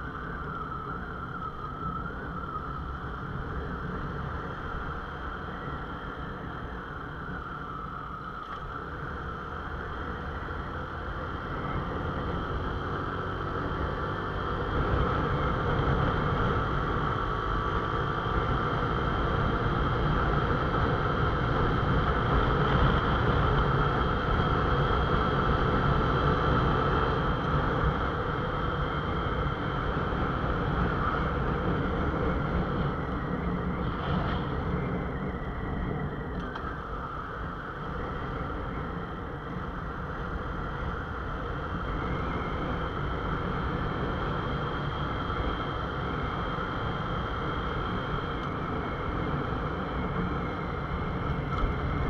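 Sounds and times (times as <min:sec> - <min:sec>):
wind rush on microphone: 0:00.0 - 0:52.0.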